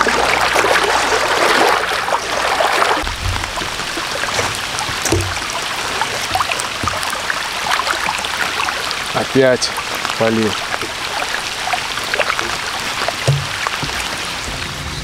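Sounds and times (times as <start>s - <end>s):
dull low thumps: 3.0s - 5.5s, 13.2s - 14.2s
raindrops ticking: 3.0s - 14.8s
steady hiss of rain: 3.0s - 15.0s.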